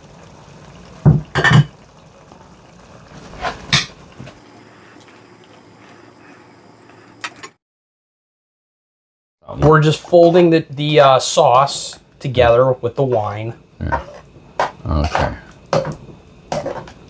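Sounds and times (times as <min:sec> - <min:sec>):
water being poured: 0:00.0 - 0:07.4
utensils knocking against pot: 0:13.9 - 0:17.0.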